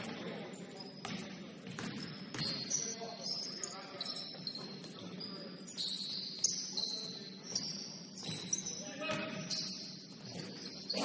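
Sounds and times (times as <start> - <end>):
sneakers squeaking on floor: 0.0 - 11.0
basketball bouncing: 1.0 - 2.8.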